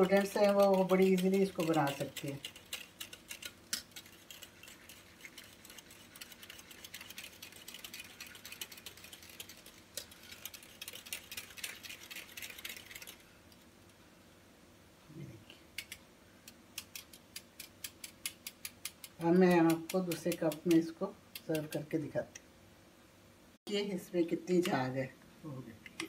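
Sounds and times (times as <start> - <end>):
whisk clicking against mug: 0.0 - 13.2, 15.8 - 21.9.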